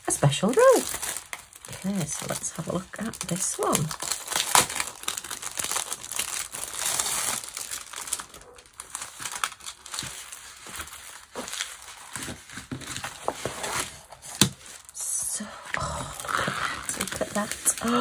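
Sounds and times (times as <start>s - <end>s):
plastic packaging crinkling: 0.1s - 15.0s, 15.8s - 18.0s
sharp plastic crack: 3.8s - 7.4s.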